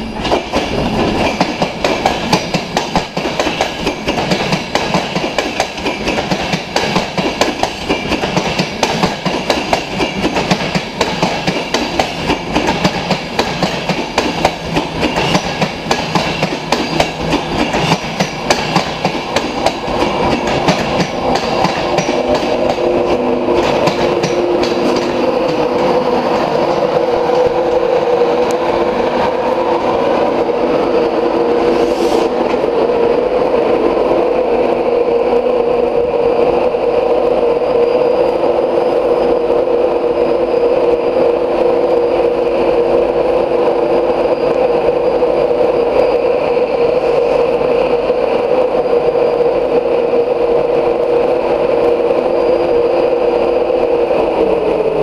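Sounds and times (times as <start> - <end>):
train wheels clicking over rail joints: 0.2 - 27.6.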